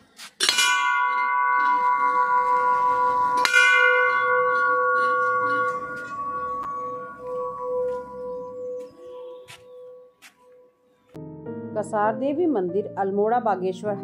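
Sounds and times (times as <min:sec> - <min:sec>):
temple bell ringing: 0:00.4 - 0:10.2.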